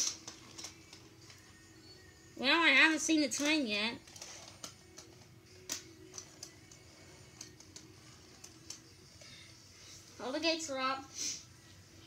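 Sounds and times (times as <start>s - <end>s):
toy cars clicking and tapping: 0.0s - 1.5s, 3.3s - 9.3s.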